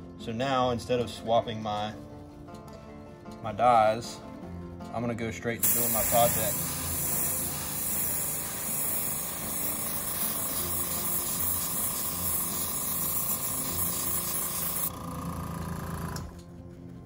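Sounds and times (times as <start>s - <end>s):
airbrush air hiss: 5.6s - 14.9s.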